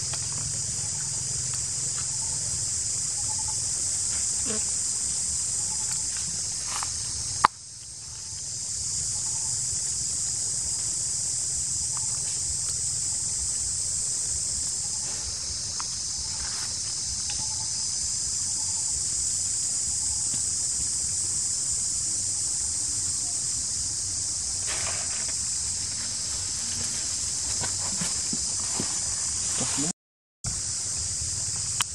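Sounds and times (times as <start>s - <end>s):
high-pitched insect chorus: 0.0s - 29.9s, 30.5s - 31.9s.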